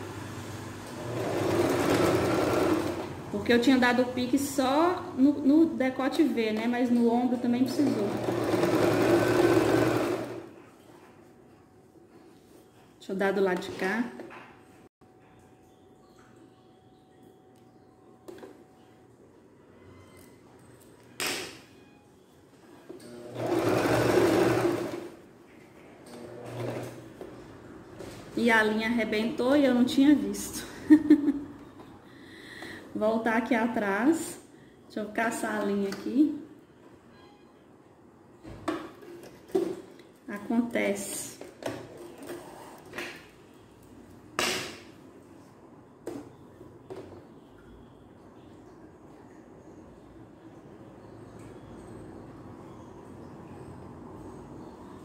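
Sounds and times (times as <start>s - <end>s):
electric sewing machine stitching: 0.8s - 3.3s, 7.7s - 10.5s, 23.0s - 25.2s, 26.1s - 27.1s.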